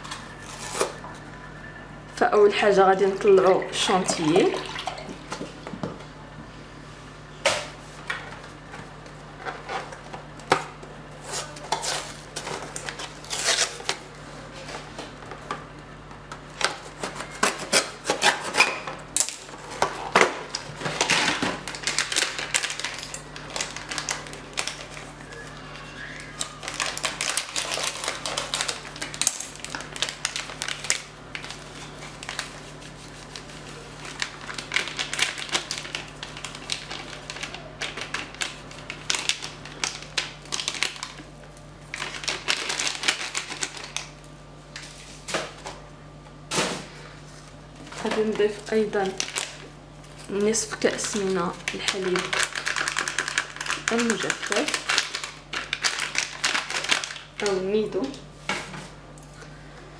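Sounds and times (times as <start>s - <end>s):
foil sachet rustling: 0.0s - 1.0s, 11.1s - 15.2s, 16.5s - 45.6s, 46.5s - 58.2s.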